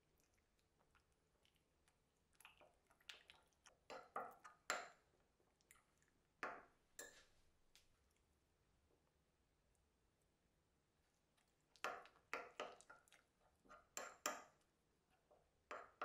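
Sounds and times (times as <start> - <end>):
metal spoon stirring in ceramic bowl: 2.5 - 5.0, 11.7 - 16.0.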